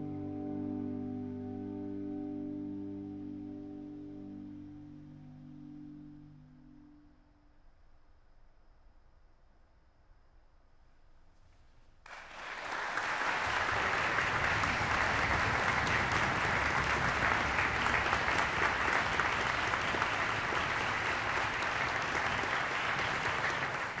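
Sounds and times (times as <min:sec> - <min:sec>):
audience applause: 0:12.1 - 0:24.0.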